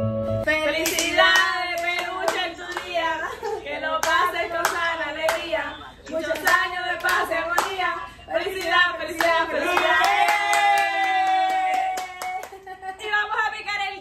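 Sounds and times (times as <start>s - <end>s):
women singing birthday song: 0.5s - 14.0s.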